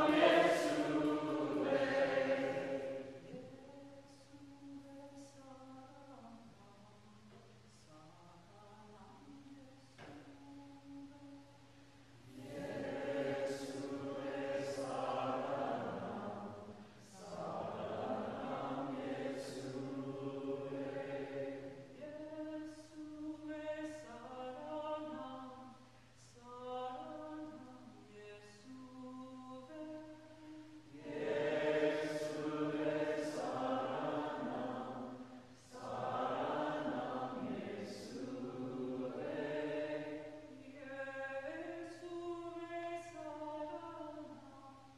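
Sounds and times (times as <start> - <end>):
group singing a hymn: 0.0 - 3.6, 12.2 - 25.7, 30.8 - 42.2.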